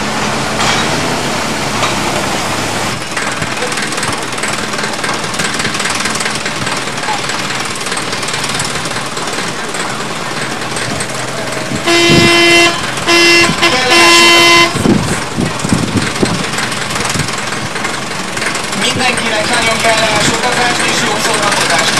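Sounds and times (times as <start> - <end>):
diesel locomotive idling: 0.0 - 21.9
locomotive horn toots: 11.7 - 15.0.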